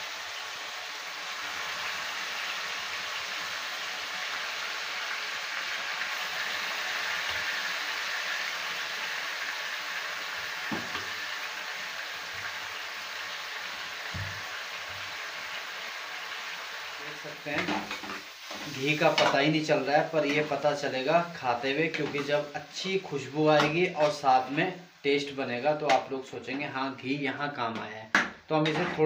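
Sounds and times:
carrots sizzling in hot fat: 0.0 - 29.0.

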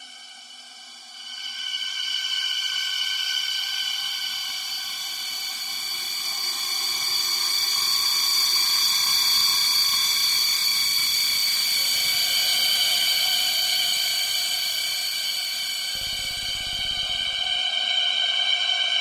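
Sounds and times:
eerie synthesized drone: 11.0 - 18.0.

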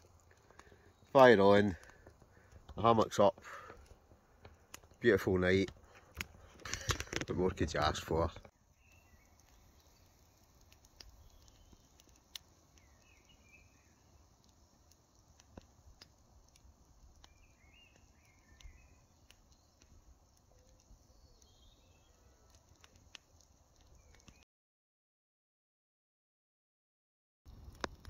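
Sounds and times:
campfire crackling: 0.0 - 24.4, 27.5 - 28.0
bird chirps: 8.4 - 12.1, 12.7 - 14.4, 17.0 - 22.8, 23.8 - 24.4.

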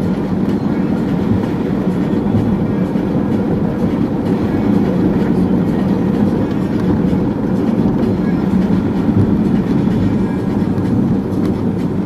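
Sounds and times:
car cabin engine drone: 0.0 - 12.0.

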